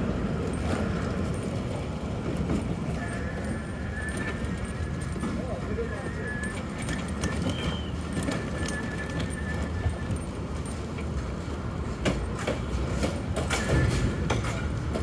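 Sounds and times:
low road rumble: 0.0 - 15.0
rattles and knocks: 6.5 - 15.0.

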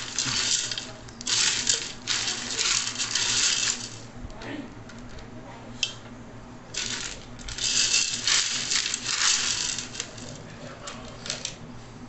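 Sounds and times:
dry beans rattling in metal pot: 0.0 - 4.1, 6.7 - 10.4.

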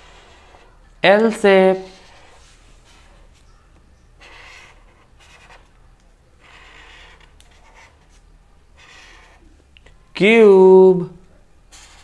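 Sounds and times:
marker pen scratching on paper: 0.0 - 3.5, 4.2 - 5.8, 6.4 - 9.6, 11.7 - 12.0.

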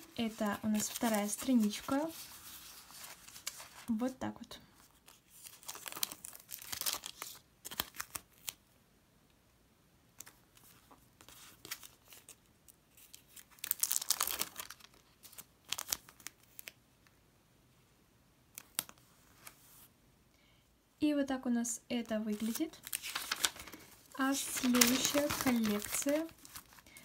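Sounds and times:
sticker crackly rustles: 0.0 - 8.6, 10.2 - 17.2, 22.0 - 27.0.

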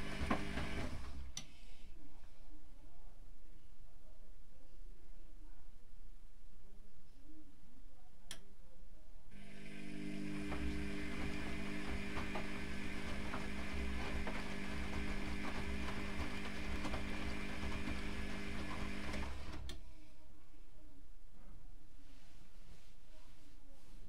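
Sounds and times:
washing machine tumbling: 0.0 - 1.4, 9.4 - 19.7.

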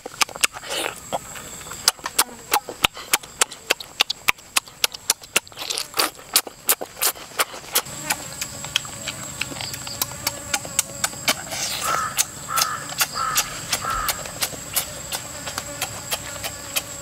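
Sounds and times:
lip smacks and chewing clicks: 0.0 - 16.9
slurp: 0.4 - 1.2.

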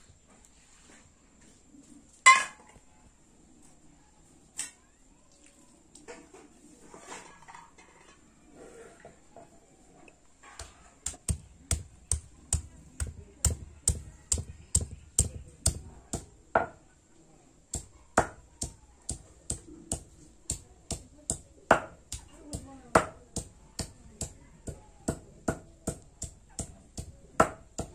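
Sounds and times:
stone pounding on stone slab: 10.6 - 16.8, 17.8 - 27.9.

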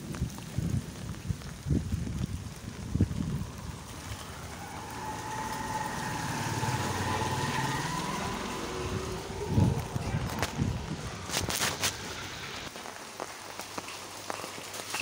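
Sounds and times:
engine revving with rising whine: 3.2 - 12.7.

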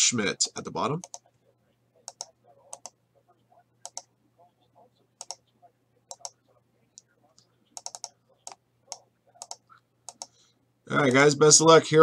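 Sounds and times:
faint steady hum: 0.0 - 12.0
mouse and keyboard clicks: 1.0 - 1.2, 2.0 - 3.0, 3.8 - 4.1, 5.2 - 5.4, 6.1 - 6.4, 7.0 - 10.4.

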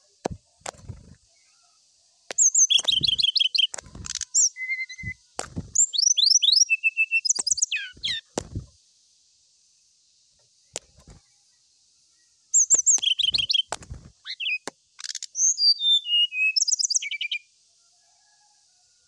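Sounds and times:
bird chirps and trills: 0.0 - 8.8, 12.1 - 17.5.

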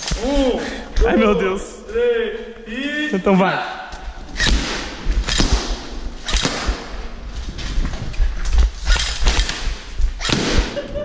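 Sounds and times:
low thumps: 4.0 - 11.0
balloons bursting: 4.1 - 11.0
airsoft rifle shots: 4.4 - 7.2, 8.8 - 10.8.

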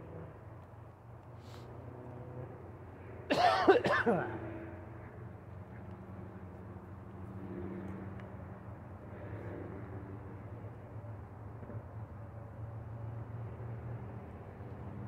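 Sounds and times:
distant train drone: 0.0 - 15.0
person coughing: 3.3 - 4.3.

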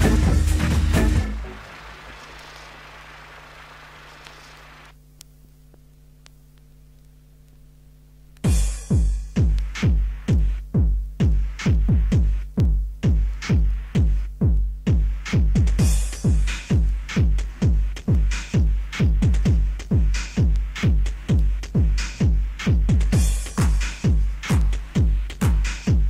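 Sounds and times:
drum machine kick drum: 0.0 - 1.6, 8.4 - 26.0
noise hiss: 0.0 - 26.0.

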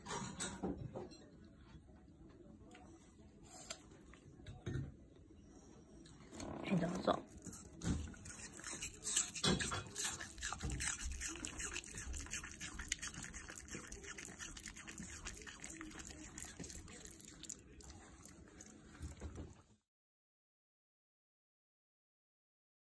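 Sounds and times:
dog crunching apple: 7.3 - 19.4.

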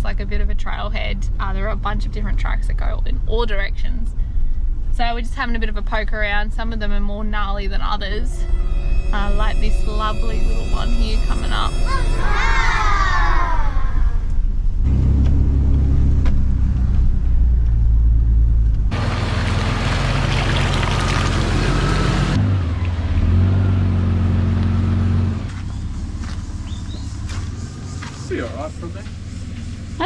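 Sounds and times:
engine running at low revs: 13.4 - 30.0.

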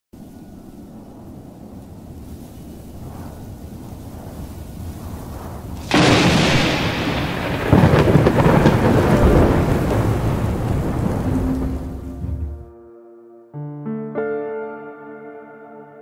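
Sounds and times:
rain hiss: 0.2 - 12.4
rush of air: 0.2 - 12.6
thunder rumbling: 0.2 - 12.7.

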